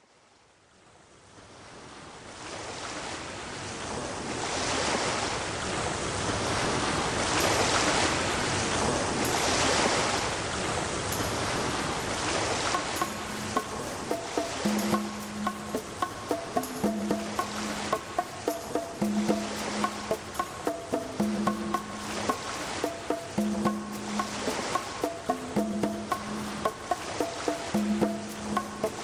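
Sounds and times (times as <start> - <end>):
surf-like rushing noise: 1.8 - 29.0
soft musical tones: 11.1 - 29.0.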